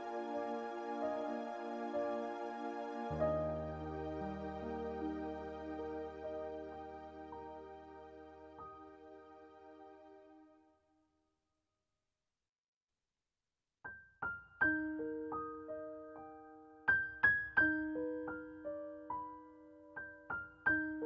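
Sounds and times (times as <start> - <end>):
slow solo piano melody: 3.0 - 9.0, 14.2 - 21.0.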